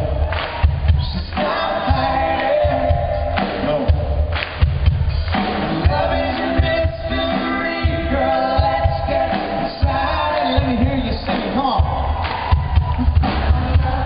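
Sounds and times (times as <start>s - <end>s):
live pop band with drums: 0.0s - 14.0s
male vocal singing: 1.0s - 4.3s, 5.7s - 12.1s.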